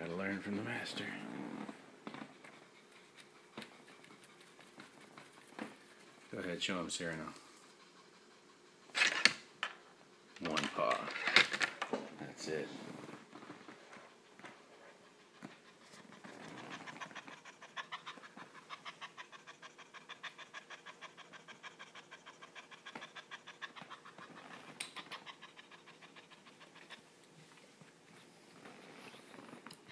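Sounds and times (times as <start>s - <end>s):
cat rhythmic mouth sounds: 15.1s - 27.0s.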